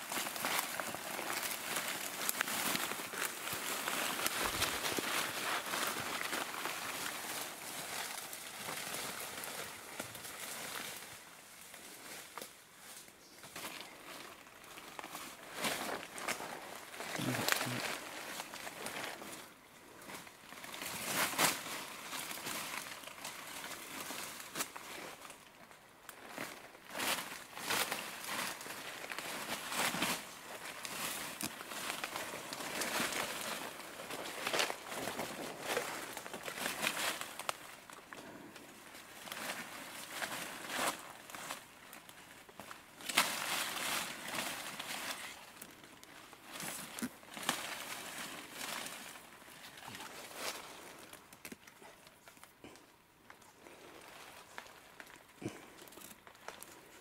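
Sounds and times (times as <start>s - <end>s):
dry leaves rustling and crackling: 0.0s - 57.0s
twigs snapping: 50.9s - 53.5s.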